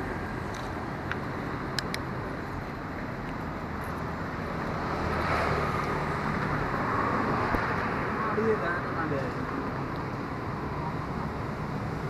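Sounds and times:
road traffic hum: 0:00.0 - 0:12.0
vehicle passing close: 0:04.1 - 0:09.5.

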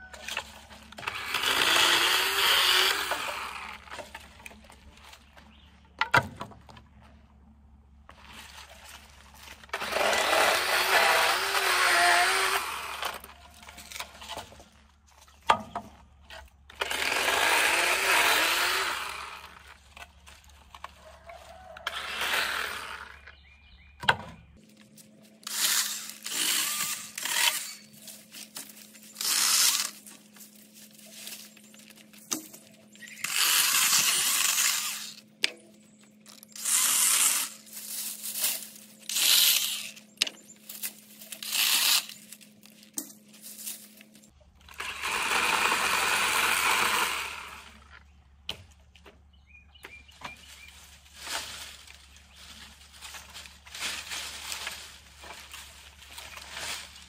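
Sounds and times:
power tool shredding material: 0:00.2 - 0:04.2, 0:09.6 - 0:14.0, 0:16.7 - 0:19.8, 0:21.8 - 0:23.3, 0:25.4 - 0:28.0, 0:29.0 - 0:30.3, 0:33.0 - 0:35.2, 0:36.5 - 0:40.1, 0:44.6 - 0:48.0.

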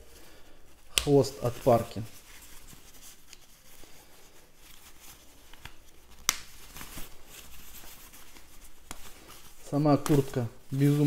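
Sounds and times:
rain parka fabric rustling: 0:00.0 - 0:11.0.

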